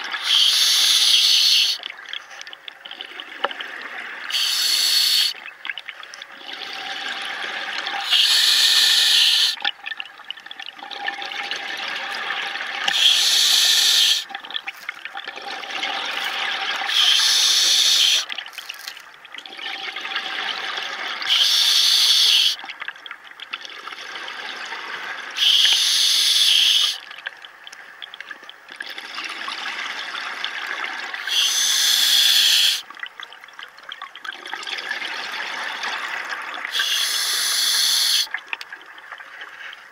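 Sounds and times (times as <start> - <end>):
regulator inhalation hiss: 0.2 - 1.8, 4.3 - 5.3, 8.0 - 9.6, 12.9 - 14.2, 16.9 - 18.2, 21.3 - 22.6, 25.4 - 27.0, 31.2 - 32.8, 36.7 - 38.3.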